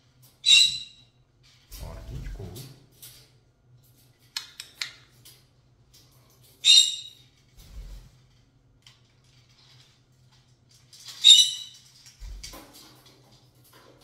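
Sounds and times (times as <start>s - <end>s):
parrot chirps and squawk: 0.4s - 1.1s, 6.6s - 7.3s, 11.0s - 11.9s.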